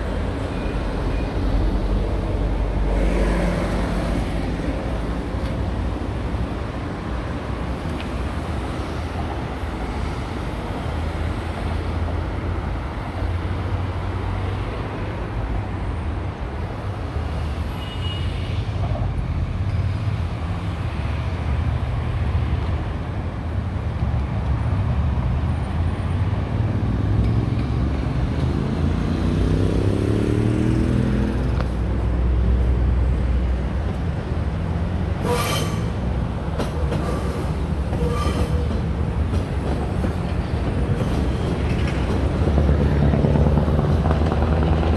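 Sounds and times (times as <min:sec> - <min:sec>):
road traffic rumble: 0:00.0 - 0:44.9
wheels clacking over rail joints: 0:35.2 - 0:44.9.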